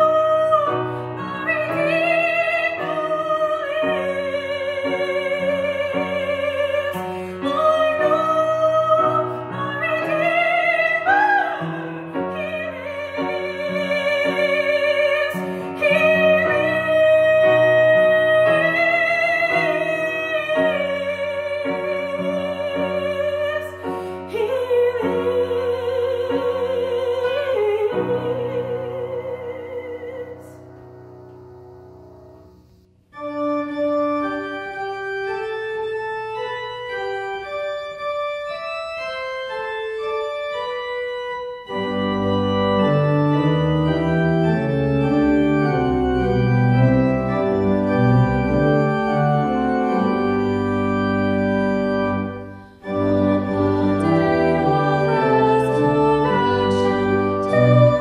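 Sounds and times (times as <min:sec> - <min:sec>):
woman singing with vibrato: 0:00.0 - 0:30.7, 0:52.8 - 0:58.0
organ playing a hymn: 0:00.0 - 0:58.0
piano accompaniment: 0:00.0 - 0:58.0.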